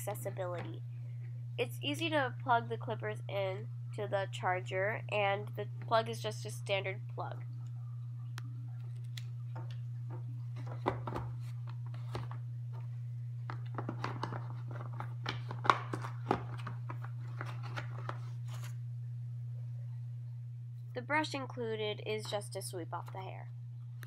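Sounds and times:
steady low hum: 0:00.0 - 0:24.0
plastic box clicks and knocks: 0:09.6 - 0:11.4.

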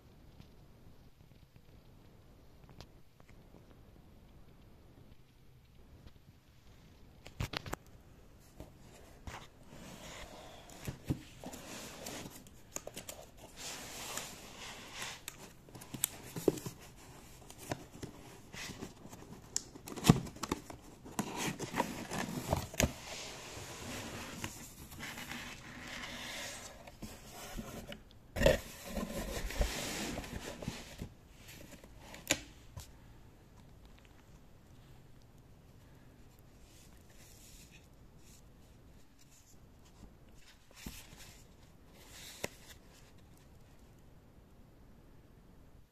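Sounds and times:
cardboard scraping and rustling: 0:08.6 - 0:32.4.

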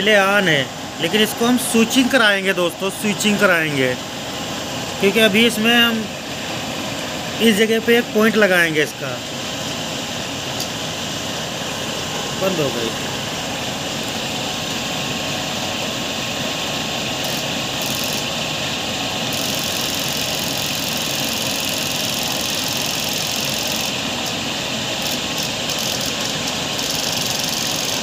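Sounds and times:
electric motor turning a pulley: 0:17.0 - 0:18.5, 0:19.2 - 0:28.0.

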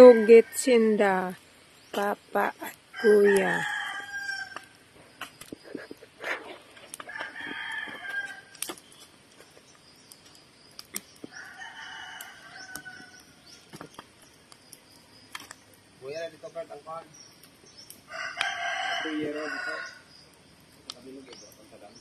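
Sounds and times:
fire popping and crackling: 0:00.0 - 0:22.0
rooster crowing: 0:02.9 - 0:04.8, 0:07.0 - 0:08.6, 0:11.2 - 0:13.5, 0:18.0 - 0:20.2.

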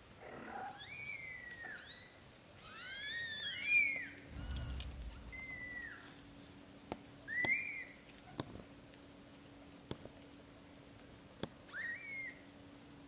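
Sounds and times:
soft low bump with clicks: 0:04.3 - 0:05.9.

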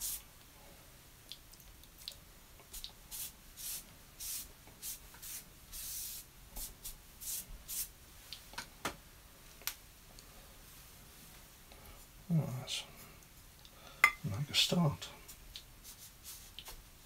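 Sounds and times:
brush swishing on paper: 0:02.7 - 0:08.0, 0:15.2 - 0:16.8.

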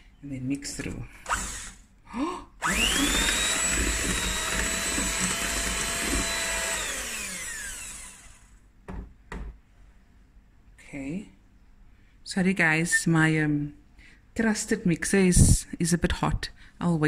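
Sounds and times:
electric hand mixer whirring: 0:01.3 - 0:01.8, 0:02.6 - 0:08.5
mixer clicks: 0:02.6 - 0:07.5.

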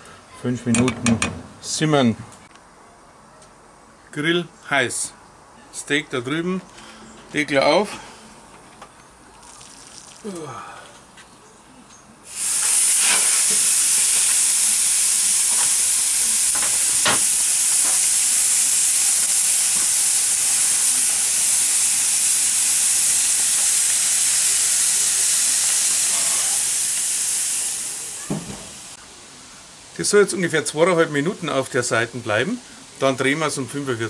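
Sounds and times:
grill lid closing: 0:00.7 - 0:01.7, 0:12.5 - 0:14.5, 0:15.6 - 0:18.2
steak sizzling on a grill: 0:12.3 - 0:34.0.

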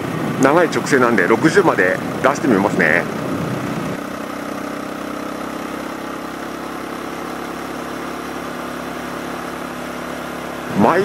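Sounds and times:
motorcycle engine at speed: 0:00.0 - 0:11.0.

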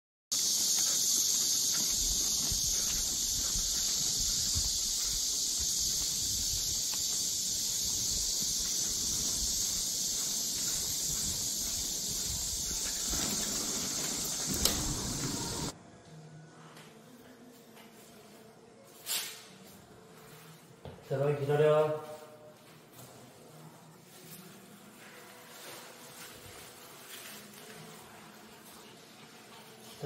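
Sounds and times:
high-pitched hiss: 0:00.3 - 0:15.7
stroller wheels rumbling on stone: 0:00.3 - 0:15.7.

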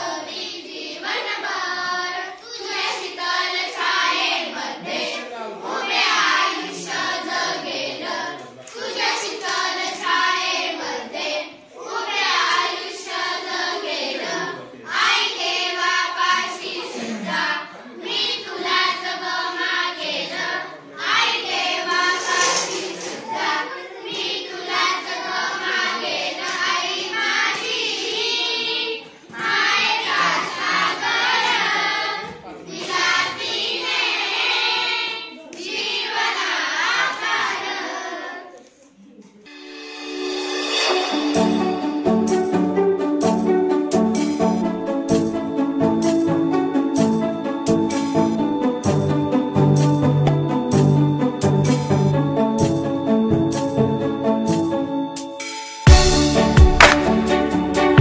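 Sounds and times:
girls singing in unison: 0:00.0 - 0:38.5.

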